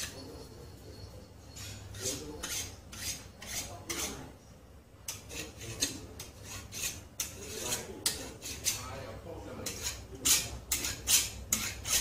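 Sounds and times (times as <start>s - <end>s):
steel scraping along knife blade: 1.5s - 4.2s, 5.1s - 8.9s, 9.6s - 12.0s.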